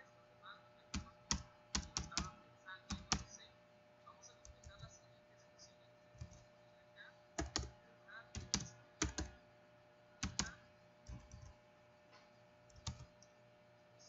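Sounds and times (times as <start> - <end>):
keyboard key clicks: 7.4 - 7.7.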